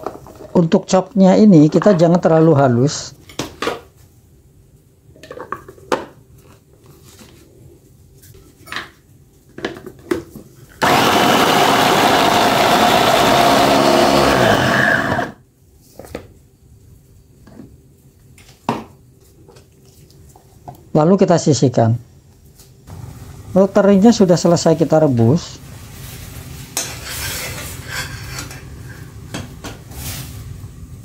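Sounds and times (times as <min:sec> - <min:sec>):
electric food chopper running: 0:10.8 - 0:15.4.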